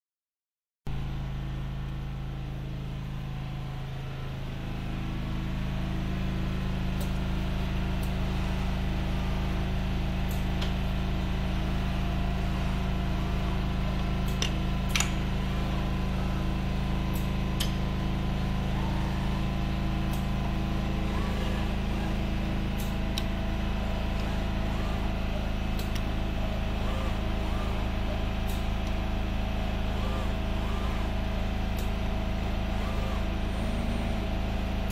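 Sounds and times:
robot arm mechanical hum: 0:01.0 - 0:34.9
faint whirs: 0:12.5 - 0:34.9
sharp mechanical clicks: 0:14.2 - 0:15.3, 0:22.8 - 0:23.4, 0:24.1 - 0:26.2, 0:26.8 - 0:29.0.

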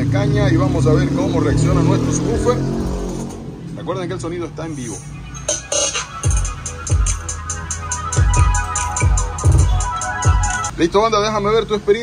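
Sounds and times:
bass-heavy electronic music: 0:04.7 - 0:10.8
deep bass hits: 0:08.2 - 0:10.6.

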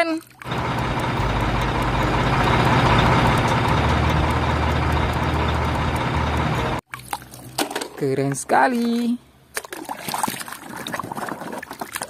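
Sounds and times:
crane truck diesel engine: 0:00.5 - 0:06.8.

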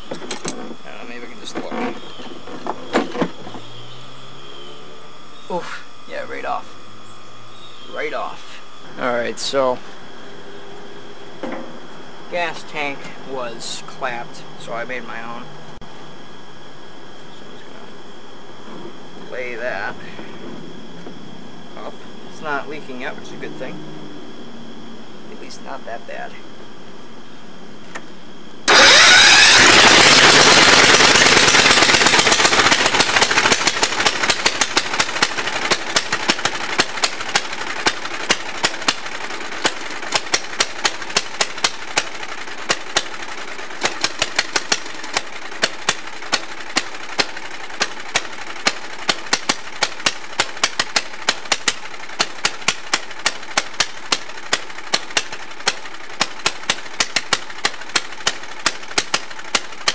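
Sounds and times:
sharp engine pops: 0:01.5 - 0:03.8, 0:28.7 - 0:59.9
lawn tractor engine racing: 0:28.7 - 0:59.9.

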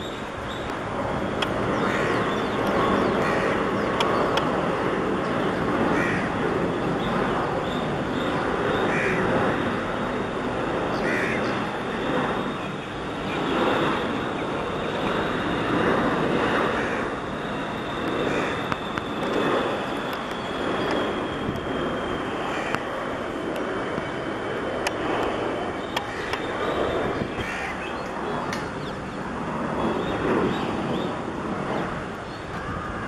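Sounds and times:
jet engine rush: 0:00.0 - 0:33.0
crows cawing: 0:01.8 - 0:02.2, 0:03.2 - 0:03.6, 0:05.9 - 0:06.3, 0:08.9 - 0:09.3, 0:11.0 - 0:11.5, 0:16.8 - 0:17.1, 0:18.3 - 0:18.7, 0:22.5 - 0:22.8, 0:26.0 - 0:26.5, 0:27.4 - 0:27.9, 0:32.5 - 0:33.0.

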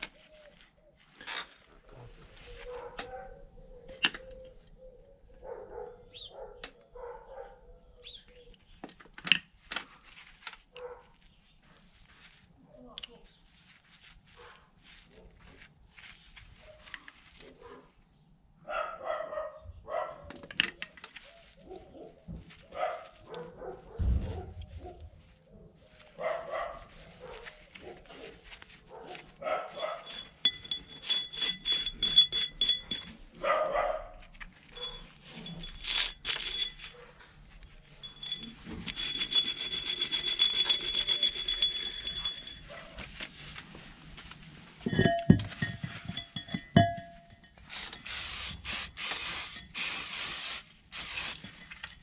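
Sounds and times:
dog barking: 0:02.6 - 0:03.9, 0:05.4 - 0:07.7, 0:10.8 - 0:11.2, 0:14.4 - 0:15.4, 0:17.5 - 0:17.9, 0:18.6 - 0:20.3, 0:21.6 - 0:30.1, 0:33.4 - 0:34.2
wire brush scrubbing metal: 0:29.6 - 0:33.4, 0:34.7 - 0:43.0, 0:44.9 - 0:52.0.

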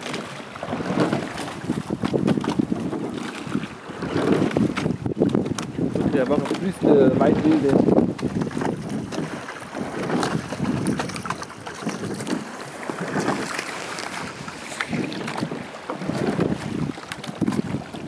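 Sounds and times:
oars in water: 0:00.0 - 0:18.0
wind buffeting microphone: 0:00.0 - 0:18.0.

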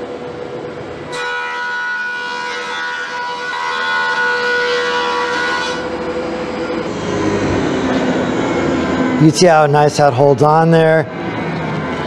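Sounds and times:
machine running hum: 0:00.0 - 0:12.0
planer cutting wood whine: 0:01.1 - 0:09.3.

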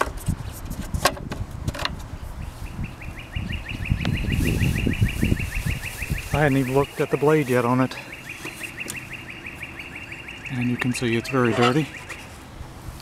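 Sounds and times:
bird trilling: 0:02.5 - 0:12.4.

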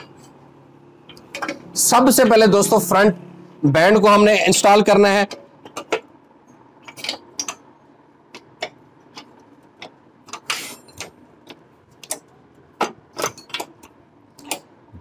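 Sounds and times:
metal scrape: 0:10.5 - 0:11.0.

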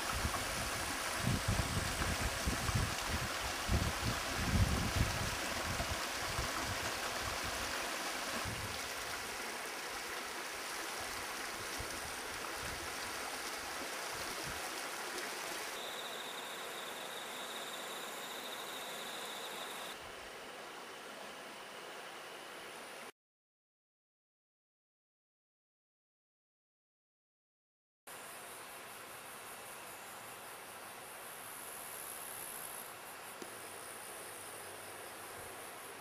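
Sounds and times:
mountain stream flowing: 0:00.0 - 0:16.8.

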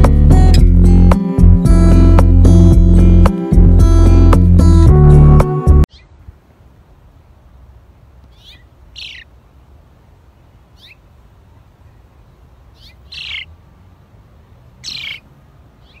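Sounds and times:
sparrow chirping: 0:05.9 - 0:06.2, 0:08.2 - 0:09.4, 0:10.6 - 0:11.1, 0:12.6 - 0:13.6, 0:14.6 - 0:16.0.

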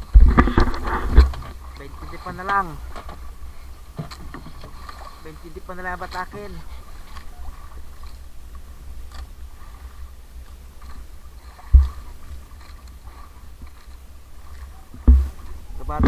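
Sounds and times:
low rumble of wind: 0:00.0 - 0:16.0
sea around a boat: 0:00.0 - 0:16.0
heavy low thump: 0:11.7 - 0:12.1, 0:15.0 - 0:16.0.

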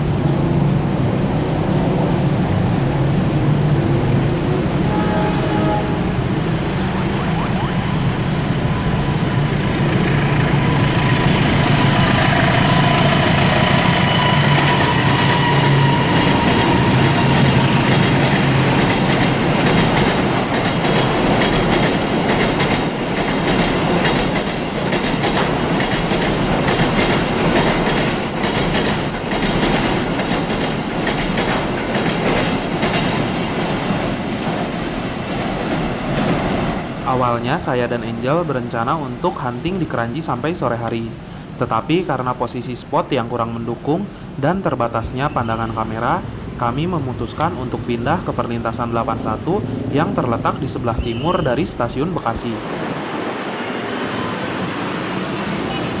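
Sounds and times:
locomotive engine drone: 0:06.0 - 0:19.8
train wheels clattering: 0:09.5 - 0:37.0
high wheel squeal: 0:10.5 - 0:18.2.

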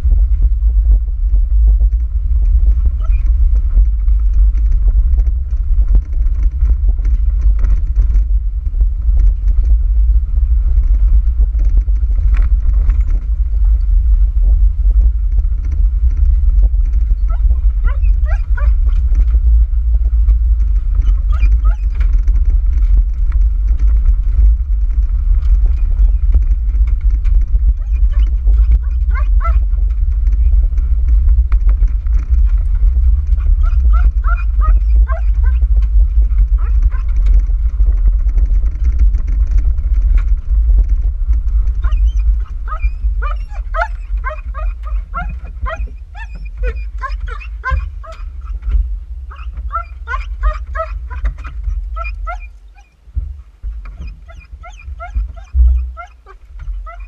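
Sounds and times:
road and wind rumble: 0:00.0 - 0:57.0
dog whining: 0:03.0 - 0:03.3, 0:17.2 - 0:19.1, 0:21.0 - 0:22.1, 0:27.8 - 0:29.7, 0:33.4 - 0:35.7, 0:36.6 - 0:37.2, 0:41.8 - 0:48.6, 0:49.3 - 0:52.9, 0:54.0 - 0:57.0.

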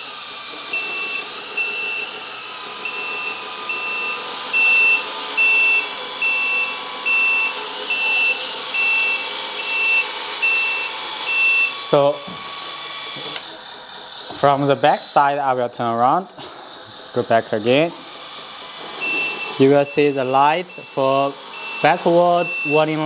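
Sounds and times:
simulated engine sound: 0:00.0 - 0:23.0
reversing alarm beeps: 0:00.7 - 0:12.0, 0:19.0 - 0:23.0.

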